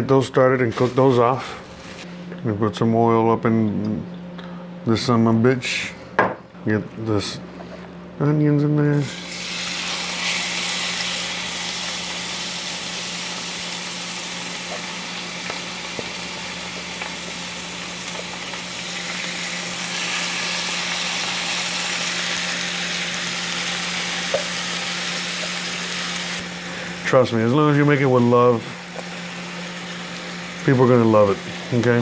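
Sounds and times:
onions sizzling in hot oil: 9.0s - 26.6s.

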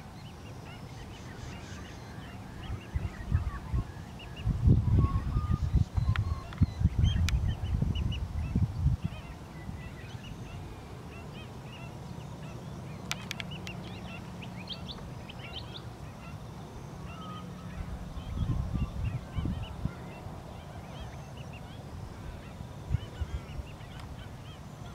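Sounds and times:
ducks and waterbirds calling: 0.0s - 24.9s.

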